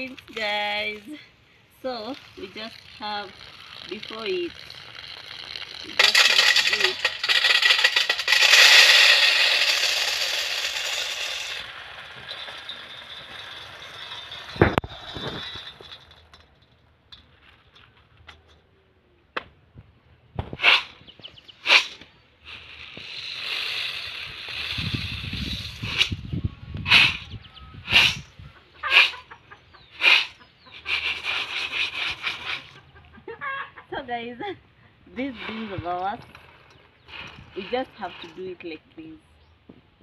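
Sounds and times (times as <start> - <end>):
dried beans pouring into metal bowl: 1.9 - 16.2, 22.5 - 26.1, 35.2 - 38.6.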